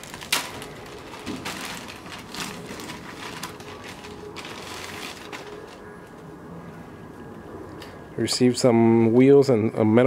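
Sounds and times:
plastic mailer bag crinkling: 0:00.0 - 0:05.9.

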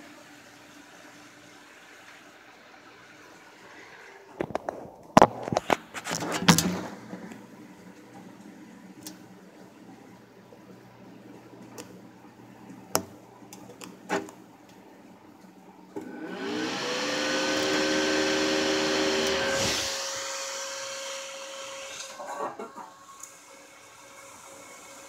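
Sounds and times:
cooler fan whine: 0:05.4 - 0:22.0.

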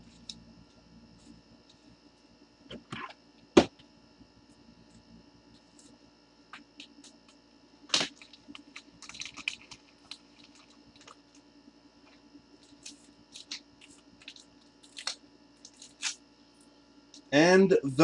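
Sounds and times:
low mains hum: 0:00.0 - 0:18.0
clicks and crinkly crackles: 0:06.6 - 0:16.2.

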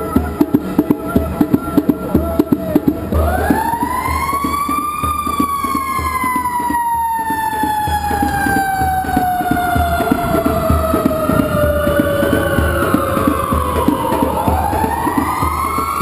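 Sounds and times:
fire engine siren wailing: 0:03.1 - 0:16.0.

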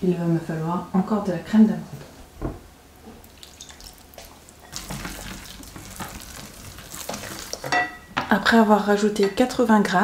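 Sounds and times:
wooden spoon stirring in a glass bowl: 0:04.7 - 0:08.0.

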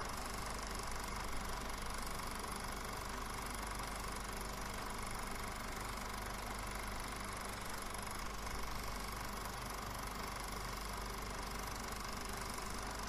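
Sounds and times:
faint steady whine: 0:00.0 - 0:13.0.

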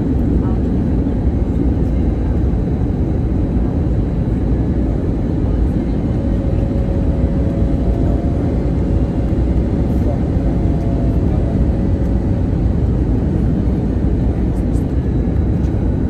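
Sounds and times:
airliner engine and airflow roar: 0:00.0 - 0:16.0.

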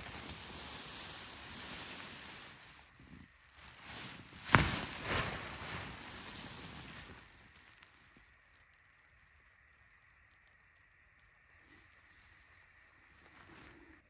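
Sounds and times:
tent fabric rustling: 0:00.0 - 0:08.1
fabric flapping: 0:03.6 - 0:07.6
fabric snapping full of air: 0:03.8 - 0:07.2.

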